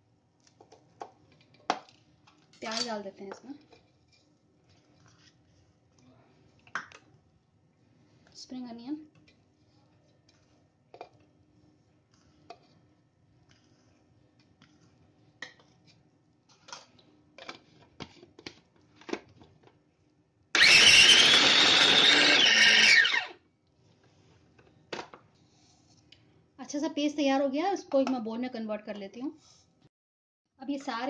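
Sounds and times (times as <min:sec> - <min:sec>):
food chopper motor running: 0:20.6 - 0:23.4.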